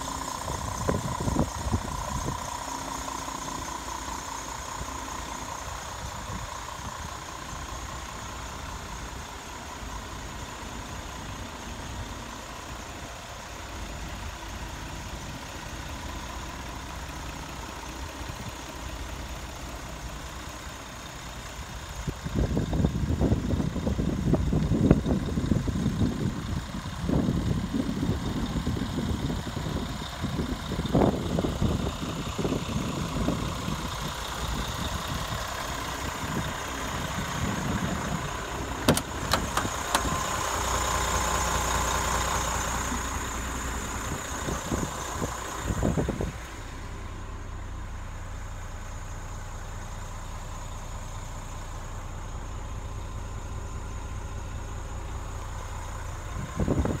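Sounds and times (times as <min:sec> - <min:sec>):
low rumbles: 0:00.0 - 0:19.2, 0:22.0 - 0:57.0
diesel engine idling: 0:00.0 - 0:57.0
sharp clicks: 0:38.8 - 0:40.2.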